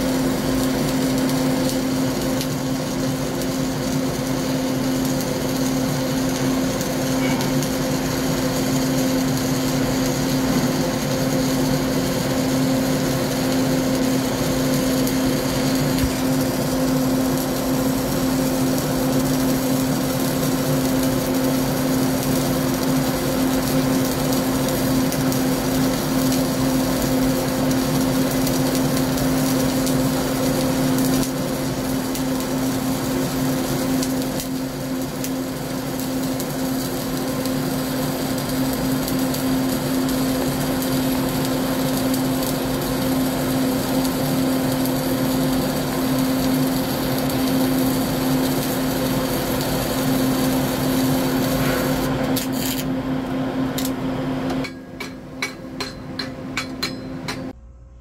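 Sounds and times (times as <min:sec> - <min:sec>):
welding arc crackle: 0:00.0 - 0:57.6
buzzing hum: 0:55.8 - 0:58.0.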